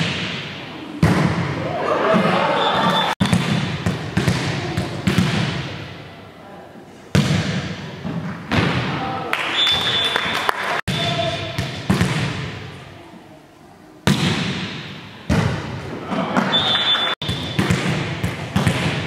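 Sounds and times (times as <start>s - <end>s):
volleyball hits echoing: 0.0s - 6.2s, 7.1s - 9.2s, 10.8s - 12.8s, 14.0s - 19.0s
high whistle tone: 9.5s - 11.6s, 16.5s - 17.6s.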